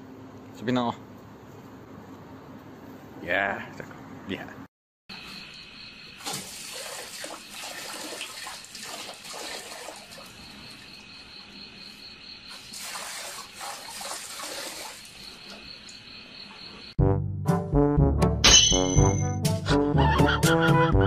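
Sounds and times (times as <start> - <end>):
crickets chirping: 5.1 - 17.0
water splashing into metal bucket: 6.2 - 10.9, 12.5 - 15.7
water dripping: 6.2 - 11.0.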